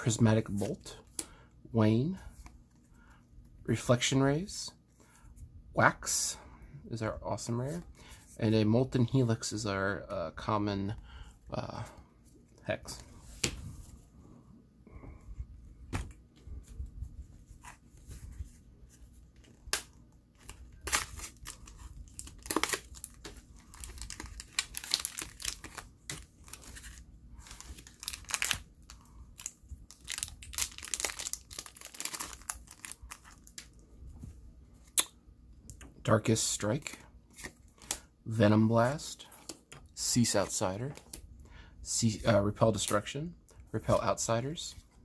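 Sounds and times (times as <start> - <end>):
wrapper crinkling and tearing: 20.4 - 33.6.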